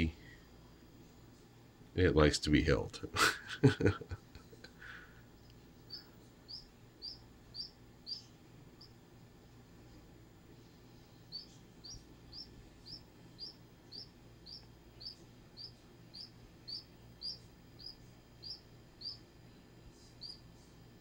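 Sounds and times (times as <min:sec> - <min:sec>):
duckling peeping: 0:05.8 - 0:09.0, 0:11.3 - 0:19.3, 0:20.2 - 0:20.4.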